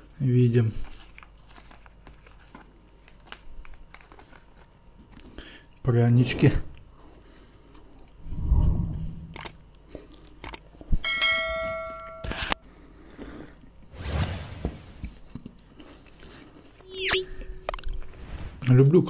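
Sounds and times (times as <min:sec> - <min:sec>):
bright bell ringing: 0:11.0 - 0:12.4.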